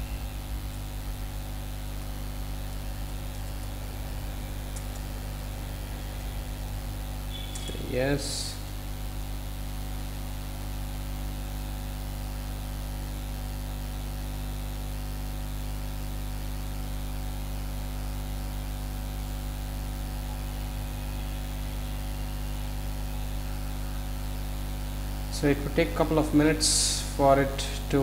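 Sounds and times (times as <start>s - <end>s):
static hiss: 0.0s - 13.4s
electrical mains hum: 0.0s - 28.0s.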